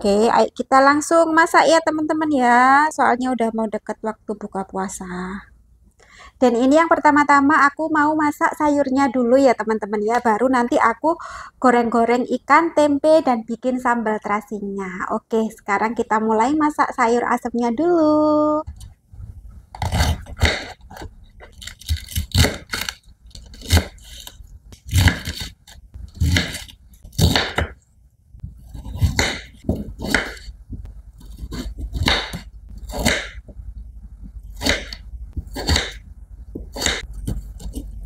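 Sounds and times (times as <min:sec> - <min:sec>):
knife chopping on wooden board: 0:19.8 - 0:21.1, 0:24.8 - 0:25.6, 0:26.2 - 0:27.8, 0:28.4 - 0:33.5, 0:34.5 - 0:37.9.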